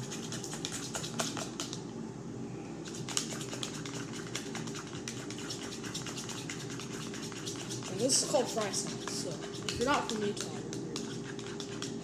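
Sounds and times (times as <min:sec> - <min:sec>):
plastic spoon stirring sauce: 0:00.0 - 0:01.8, 0:02.9 - 0:12.0.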